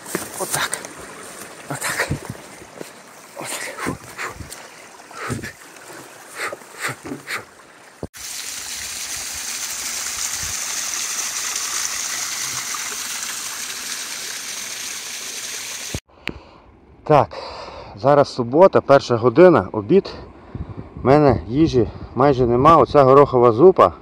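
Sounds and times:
waterfall rushing: 0.0 - 7.5.

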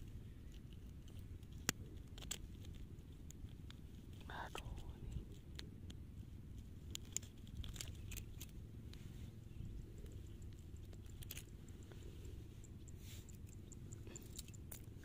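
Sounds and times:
low steady rumble: 0.0 - 15.0
fishing tackle clicks and rustles: 6.2 - 8.6, 9.5 - 12.0.

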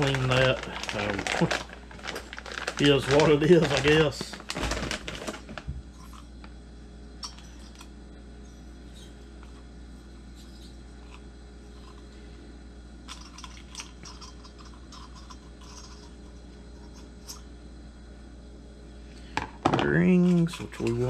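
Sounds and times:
parts and packaging rustling: 0.0 - 6.3
steady low hum: 0.0 - 21.0.

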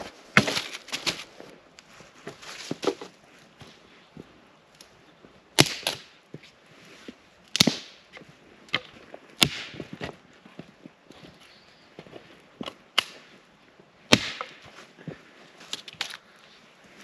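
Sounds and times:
dry branches snapping: 0.4 - 1.3, 5.6 - 6.1, 7.5 - 8.0, 8.7 - 9.9, 12.6 - 13.2, 14.1 - 14.7, 15.6 - 16.2.

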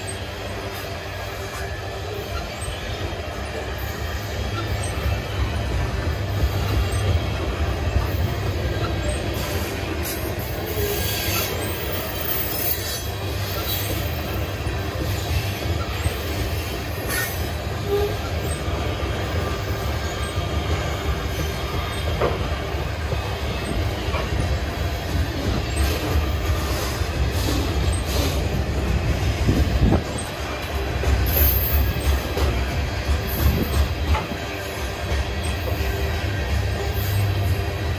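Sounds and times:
freight train rumbling past: 0.0 - 37.9
faint wheel squeals: 8.4 - 22.6.

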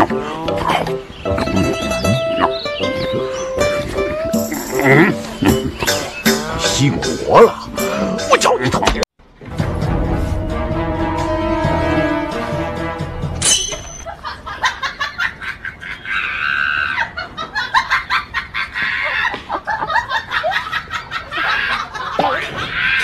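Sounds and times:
music: 0.0 - 13.6.

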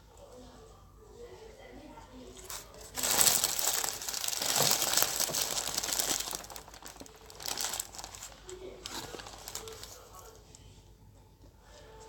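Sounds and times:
paper wrapper crinkling: 2.4 - 10.4.

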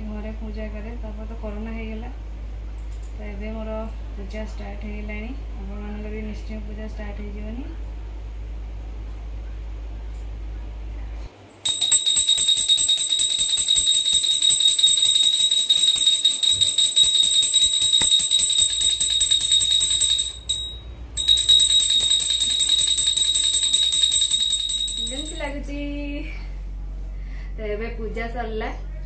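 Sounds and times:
small hand bell ringing rapidly: 11.6 - 25.6.

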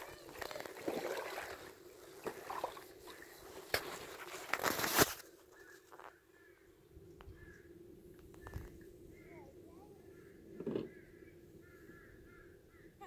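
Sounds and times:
paddle splashing in water: 0.0 - 4.9.

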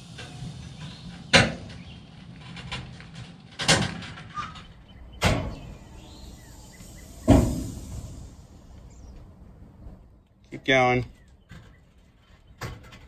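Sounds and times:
loud thumps: 5.2 - 8.6.

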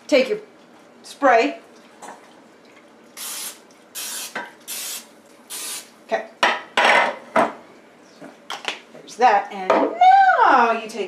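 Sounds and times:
aerosol spray hissing: 3.2 - 5.9.

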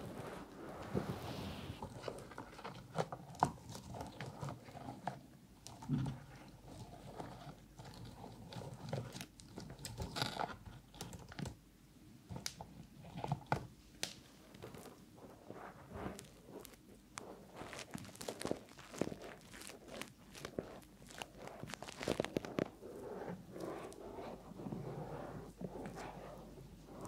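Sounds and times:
cotton swabs crackling and rustling: 14.1 - 27.0.

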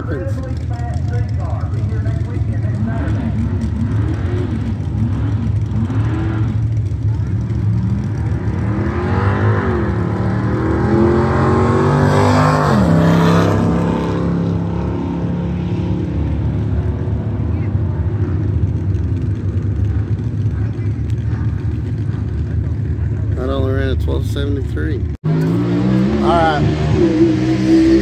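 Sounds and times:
drag cars accelerating hard: 0.0 - 24.0, 25.3 - 28.0
engine revving in blips: 0.9 - 16.6, 25.2 - 28.0.

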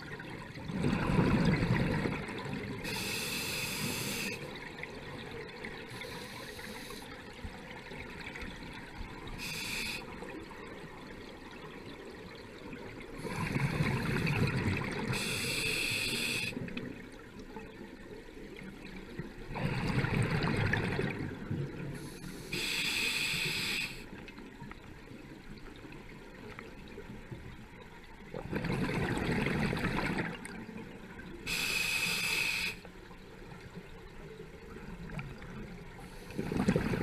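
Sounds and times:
exhaled bubbles rumbling underwater: 0.0 - 15.5, 16.6 - 22.5, 24.2 - 31.6, 33.0 - 37.0
regulator inhalation hiss: 2.8 - 4.5, 6.0 - 7.2, 9.4 - 10.2, 15.1 - 16.6, 22.0 - 24.1, 31.5 - 32.9.

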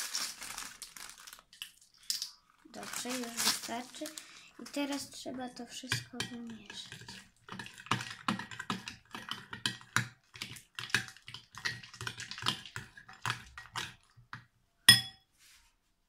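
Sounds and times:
utensil stirring in glass bowl: 4.7 - 14.3
ringing clink on glass: 14.9 - 15.2.

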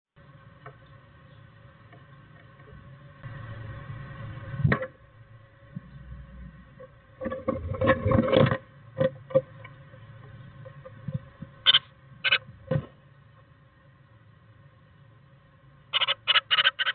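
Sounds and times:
faint steady hum: 0.2 - 16.9.

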